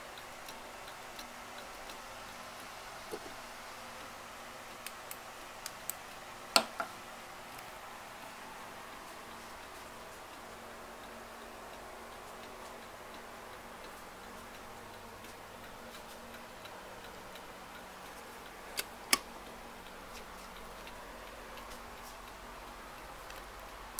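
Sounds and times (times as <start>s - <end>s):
clock ticking faintly: 0.0s - 2.8s, 8.9s - 23.9s.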